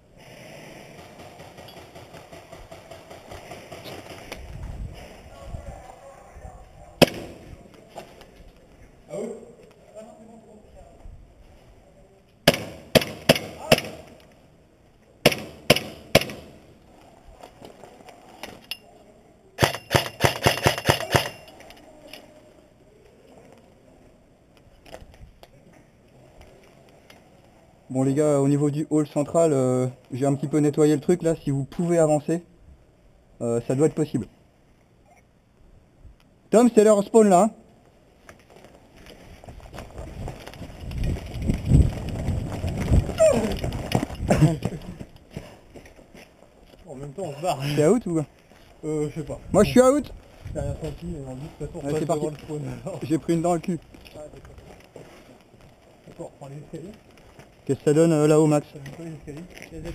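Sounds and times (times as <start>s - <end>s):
airsoft guns firing: 0.8s - 4.4s, 7.0s - 7.5s, 12.4s - 14.2s, 15.2s - 16.7s, 19.6s - 21.5s
running footsteps on gravel: 38.5s - 46.8s.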